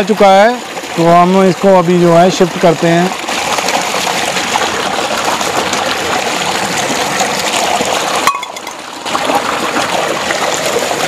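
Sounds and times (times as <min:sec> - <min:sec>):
water gushing from pipe into tank: 0:00.0 - 0:11.0.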